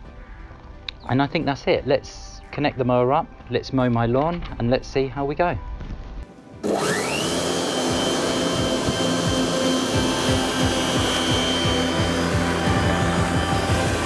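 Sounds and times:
electric lawn mower whining: 6.6s - 14.0s.

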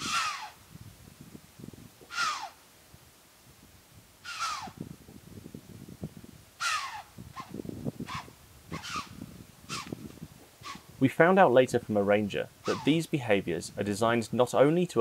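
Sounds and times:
deer alarm calls: 0.0s - 0.6s, 2.0s - 2.6s, 4.2s - 4.8s, 6.6s - 10.0s, 10.6s - 10.8s, 12.6s - 13.1s.

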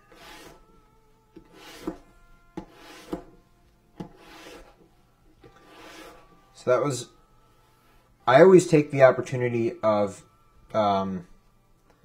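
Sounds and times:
tool rubbing leather edge: 0.0s - 0.7s, 1.4s - 3.4s, 4.0s - 6.4s.

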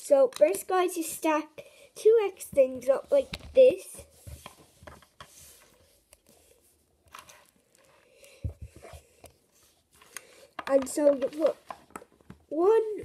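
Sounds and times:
plastic bricks clicking and rattling: 10.5s - 12.4s.

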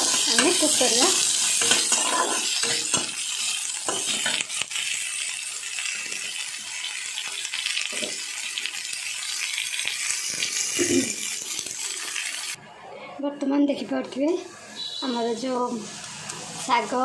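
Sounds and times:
metal spatula scraping pan: 0.0s - 4.4s
onions sizzling in hot oil: 0.0s - 12.6s.

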